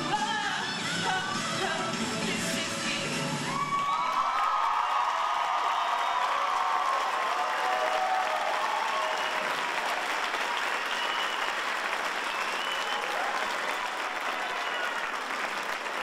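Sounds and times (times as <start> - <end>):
audience applauding: 3.5 - 16.0.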